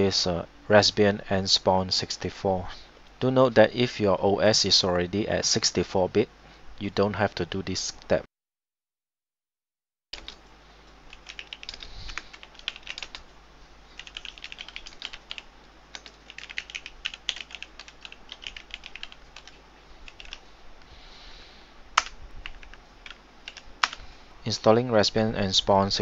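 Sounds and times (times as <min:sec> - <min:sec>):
typing on computer keyboard: 0:10.2 - 0:10.4, 0:11.1 - 0:13.2, 0:14.0 - 0:20.4, 0:22.0 - 0:24.0.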